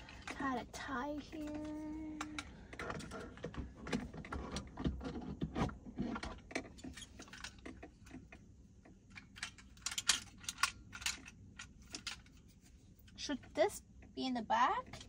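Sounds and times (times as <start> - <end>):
plastic clicks and rattles: 1.3 - 12.4.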